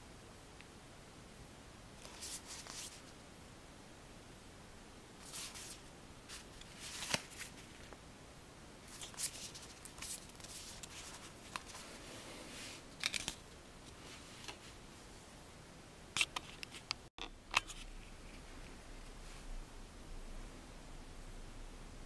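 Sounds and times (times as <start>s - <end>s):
paper booklets rustling: 2.0s - 3.1s, 5.2s - 7.9s, 8.9s - 12.0s.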